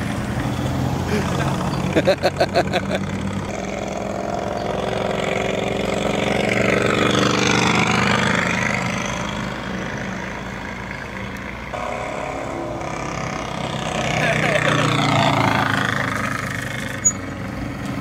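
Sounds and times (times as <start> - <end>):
motorcycle engine sound from loudspeakers: 3.1 - 9.4, 11.8 - 18.0.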